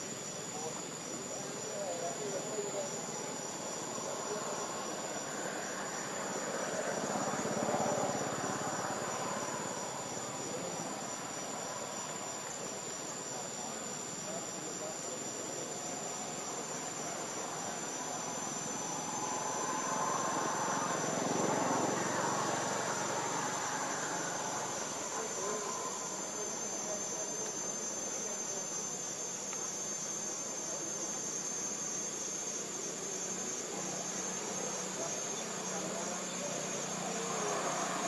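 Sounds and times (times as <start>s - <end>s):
high-pitched insect drone: 0.0s - 38.0s.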